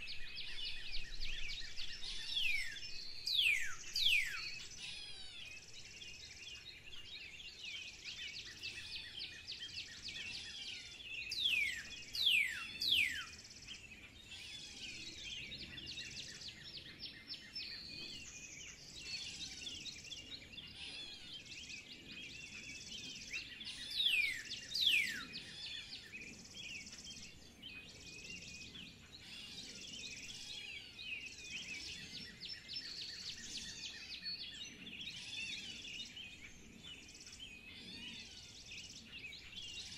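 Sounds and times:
birds chirping and singing: 0.0 - 39.9.

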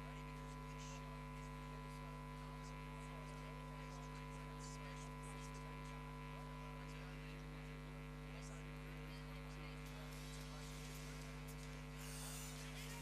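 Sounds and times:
faint mains hum: 0.0 - 13.0.

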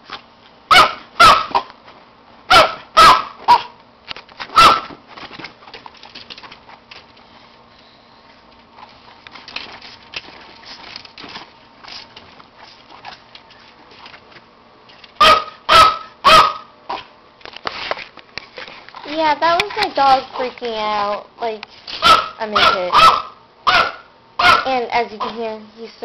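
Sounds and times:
dog barking: 0.7 - 1.7, 2.5 - 3.8, 4.6 - 4.9, 15.2 - 17.1, 22.0 - 25.4.

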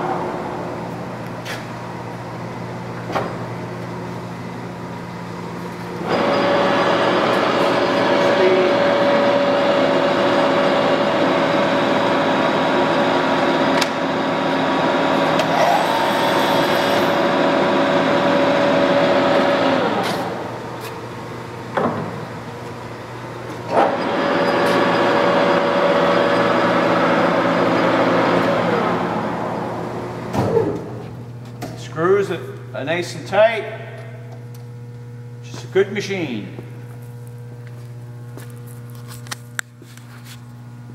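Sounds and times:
lathe gear whine: 5.9 - 20.8, 22.8 - 30.3.

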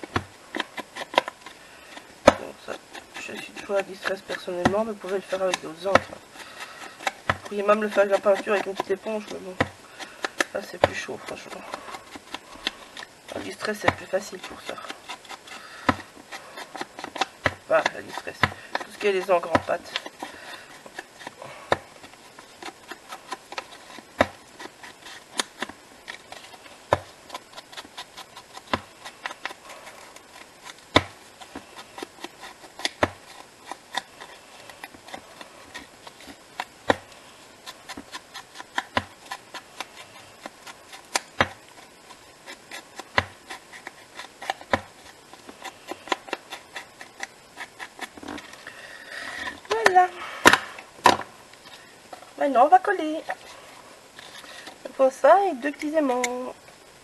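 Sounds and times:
soft rubbing: 0.0 - 57.0.

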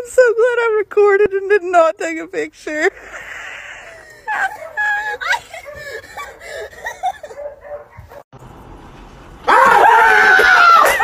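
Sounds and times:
person whimpering: 2.8 - 7.3
high-pitched broken laughing: 2.8 - 7.4
breathy rush of air: 2.9 - 4.3.

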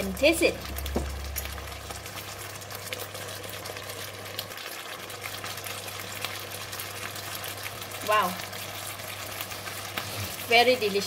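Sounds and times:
steady low hum: 0.0 - 4.4
sauce bubbling and sizzling: 0.0 - 11.0.

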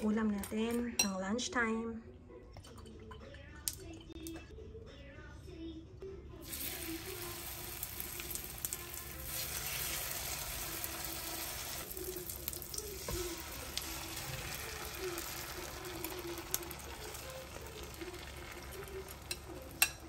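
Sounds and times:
food sizzling in oil: 6.4 - 20.0.

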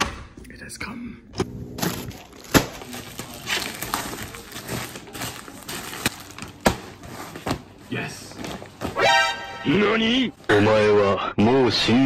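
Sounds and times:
plastic packaging crinkling: 1.8 - 9.0.

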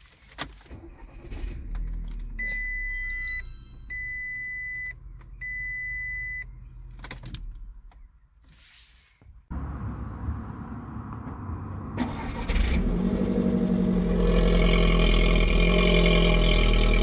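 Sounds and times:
dashboard warning chime beeps: 2.4 - 6.6
car engine idling: 9.5 - 17.0.

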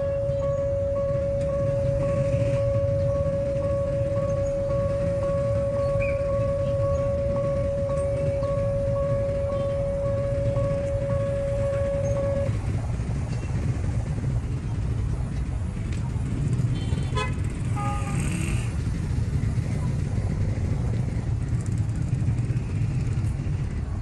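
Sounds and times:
held horn note: 0.0 - 12.7
steady low rumble: 0.0 - 24.0.

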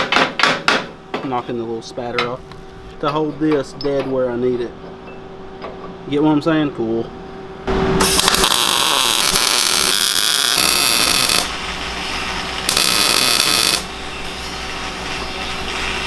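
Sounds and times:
welder arc running: 7.6 - 16.0.

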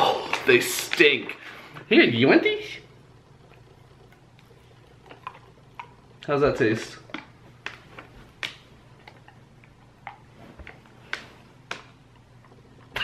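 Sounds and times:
dog chewing crunchy treat: 3.3 - 12.9.

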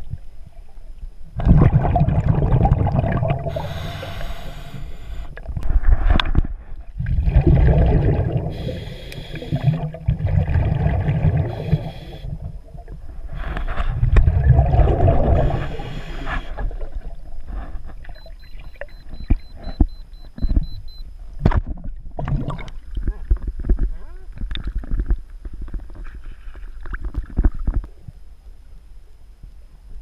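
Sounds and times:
underwater exhaled air bubbling: 1.4 - 18.8, 21.8 - 23.5
faint rapid beeping: 18.1 - 21.2.

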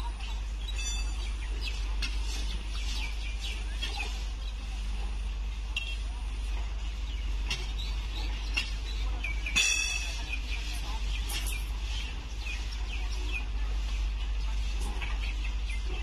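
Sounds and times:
birds chirping: 0.0 - 16.0
distant voices: 0.0 - 16.0
steady low rumble: 0.0 - 16.0
tools clinking on rails: 0.7 - 1.3, 9.4 - 11.8.

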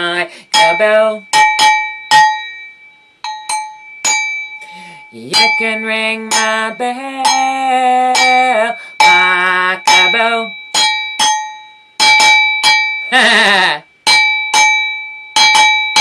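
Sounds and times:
cowbell struck: 0.0 - 13.3, 14.0 - 16.0
short wavering vocal sound: 13.1 - 13.9.

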